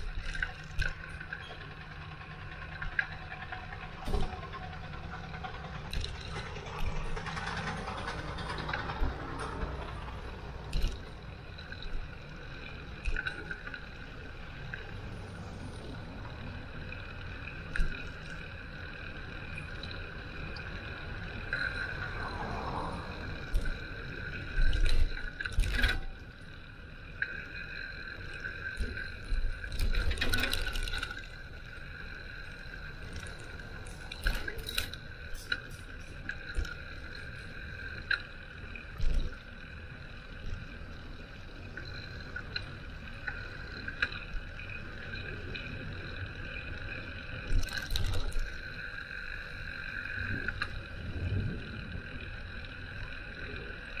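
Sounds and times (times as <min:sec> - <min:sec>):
bicycle rattling over bumps: 0:00.0 - 0:12.4, 0:16.5 - 0:26.9, 0:27.8 - 0:37.8
steady whine: 0:00.0 - 0:54.0.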